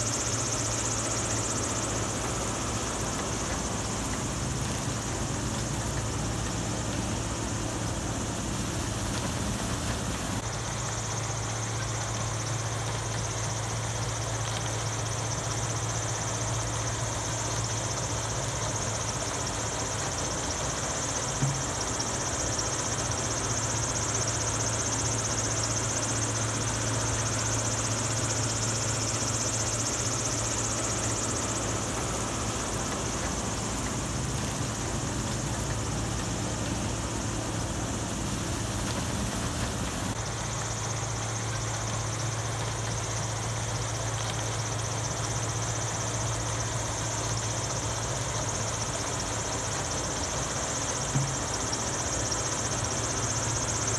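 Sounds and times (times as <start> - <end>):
motor humming and whining: 0.0 - 53.9
small tick: 11.7 - 15.6, 41.4 - 45.9.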